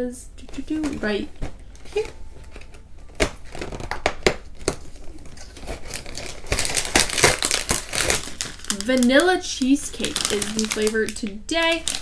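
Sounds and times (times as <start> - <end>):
packet crinkling: 0.6 - 12.0
cardboard door tearing open: 5.4 - 8.8.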